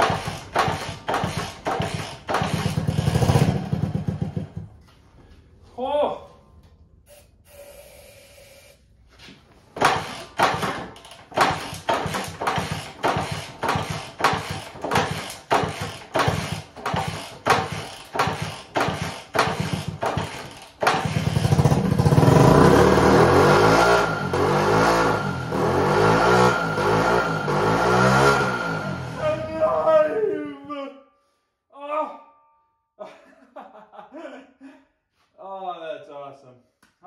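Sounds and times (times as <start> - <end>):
small engine turning over and running: 0.0 - 4.4, 9.8 - 26.0.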